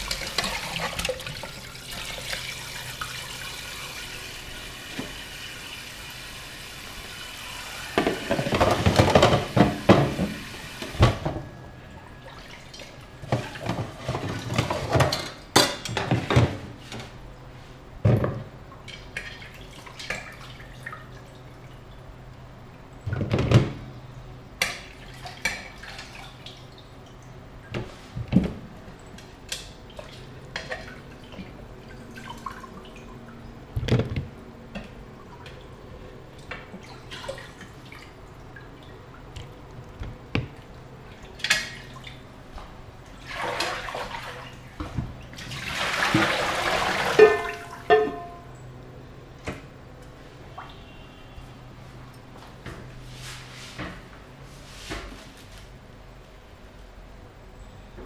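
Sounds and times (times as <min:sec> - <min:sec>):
water splashing and dripping: 0:00.0 - 0:04.1, 0:43.2 - 0:48.2
knocks of pot and plastic basin: 0:08.0 - 0:10.4.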